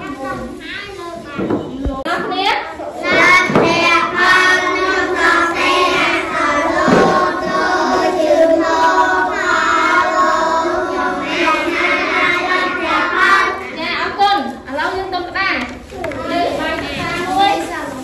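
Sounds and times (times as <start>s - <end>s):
children singing in unison: 3.0s - 13.7s.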